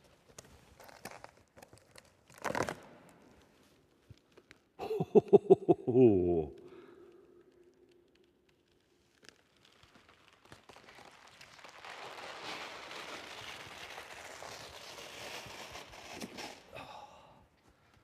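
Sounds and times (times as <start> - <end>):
cardboard tearing: 0.8 - 2.9, 9.3 - 16.7.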